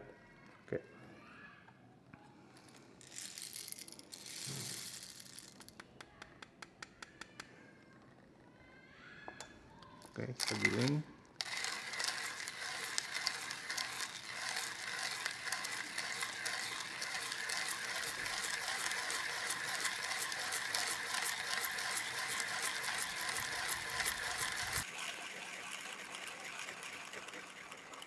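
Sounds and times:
hand grinder crunching coffee beans: 3.0 - 5.8, 10.1 - 28.0.

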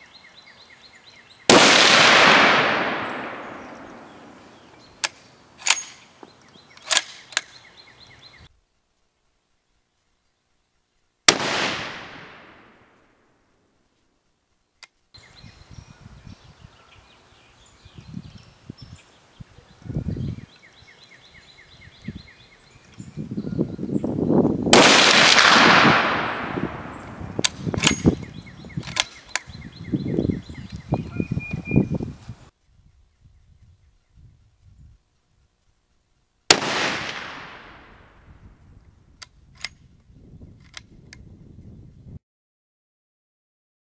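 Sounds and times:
rifle shots: 1.5 - 5.9, 11.3 - 12.9, 24.7 - 28.2, 36.5 - 38.1
sharp clicks: 1.8 - 4.1, 5.0 - 7.6, 25.0 - 29.6, 40.6 - 41.2.

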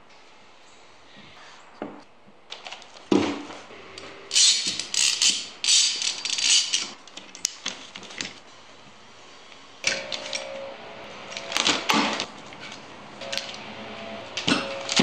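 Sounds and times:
metal clamps scraping and rattling: 4.3 - 8.4.

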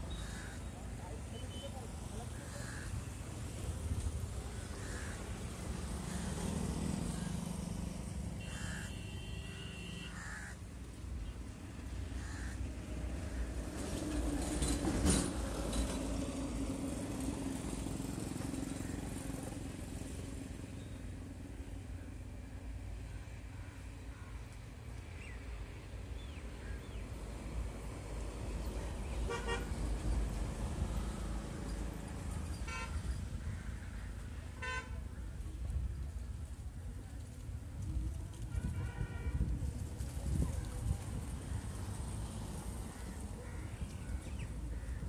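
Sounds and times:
crow cawing: 0.1 - 0.7, 2.4 - 2.9, 4.5 - 5.2, 8.5 - 9.1, 10.0 - 10.6, 12.1 - 12.6
buzzy horn toot: 8.4 - 10.1.

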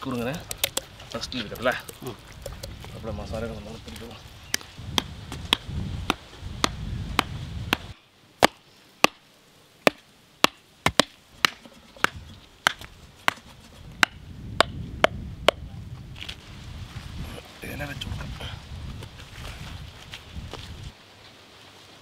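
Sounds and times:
hammer striking bamboo stakes: 4.9 - 9.2, 9.9 - 15.6.

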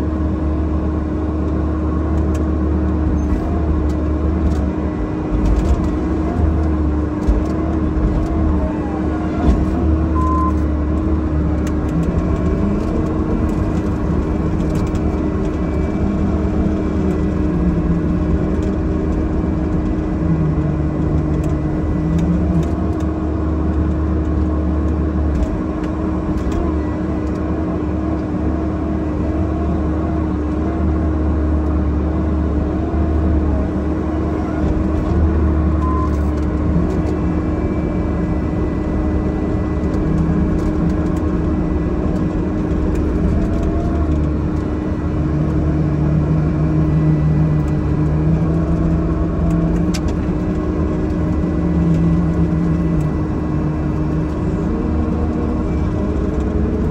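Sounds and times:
excavator diesel engine running: 0.0 - 56.9.

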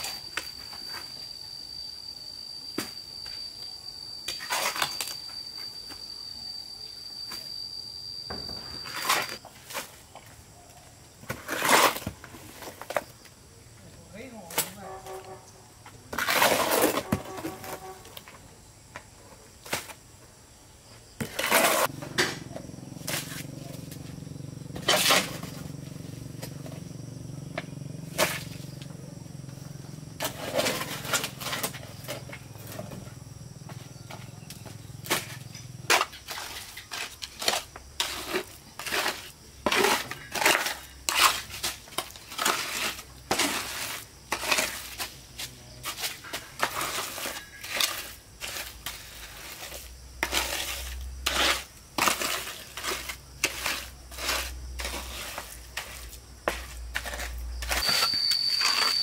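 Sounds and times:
hand tool scraping and crunching: 0.0 - 1.2, 4.3 - 5.4, 8.3 - 10.4, 11.2 - 13.2, 14.5 - 18.4, 21.2 - 22.3, 23.0 - 23.9, 24.7 - 25.8, 28.1 - 28.7, 30.2 - 33.1, 34.0 - 59.0.

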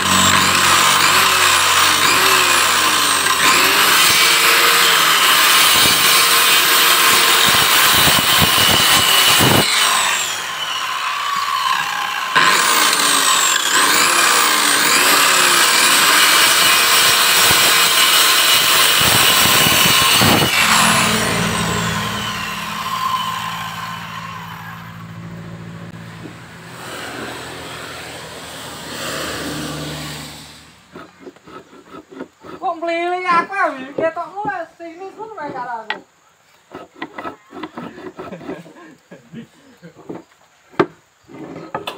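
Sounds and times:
saw winding down: 0.0 - 33.4
circular saw cutting wood: 0.0 - 34.6, 35.4 - 39.0.

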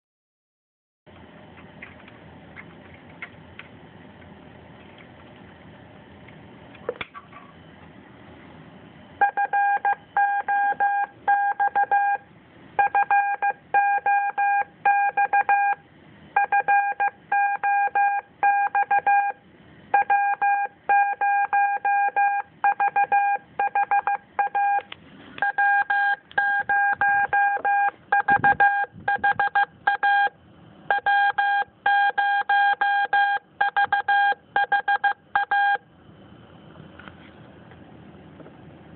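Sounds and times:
morse code beep tone: 9.2 - 12.2, 12.8 - 15.8, 16.4 - 35.8.

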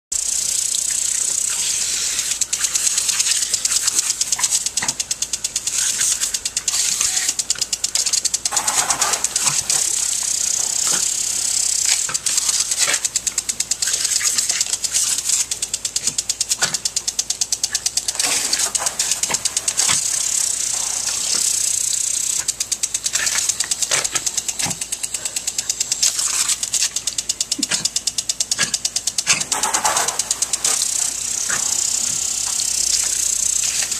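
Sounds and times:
sprinkler spray hissing: 0.1 - 33.9
sprinkler head rattling tick: 0.2 - 33.9.

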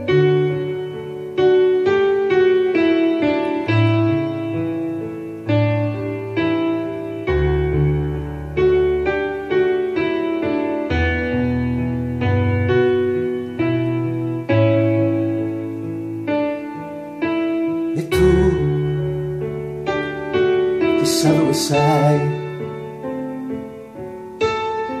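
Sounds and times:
slow gentle piano music: 0.0 - 25.0.

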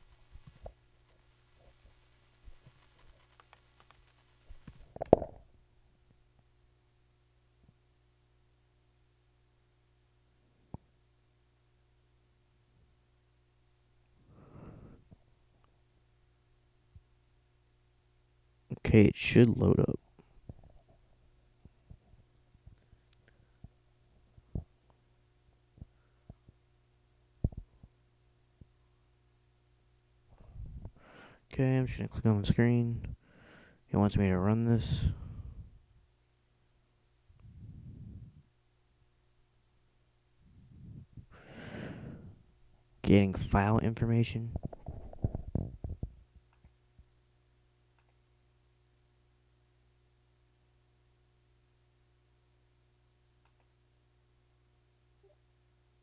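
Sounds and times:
faint electrical hum: 0.0 - 56.0
typing on a keyboard: 2.6 - 4.8.

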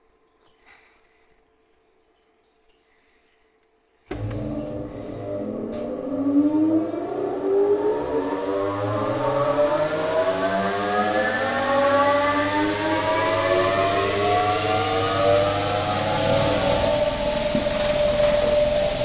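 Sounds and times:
low motor hum: 4.1 - 19.0
machine whine rising in pitch: 4.1 - 19.0.

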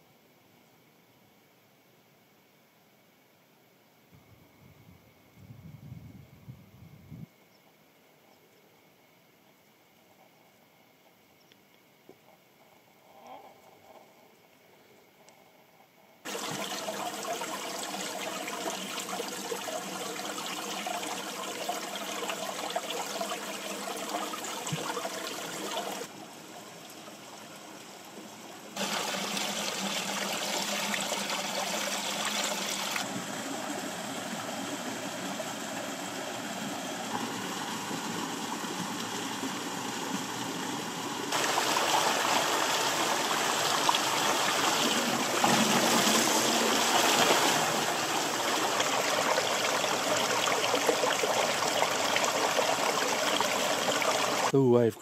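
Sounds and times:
stream splashing over boulders: 16.3 - 26.8, 28.8 - 54.5
small cascade pouring: 16.3 - 33.1, 41.3 - 54.5.

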